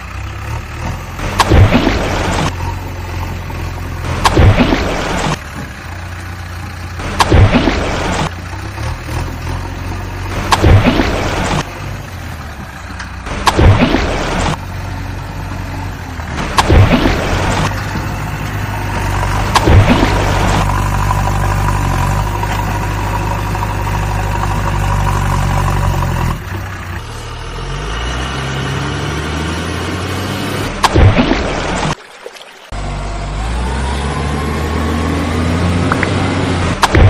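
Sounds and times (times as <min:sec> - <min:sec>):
vehicle engine revving: 0:12.6 - 0:31.9, 0:32.7 - 0:37.0.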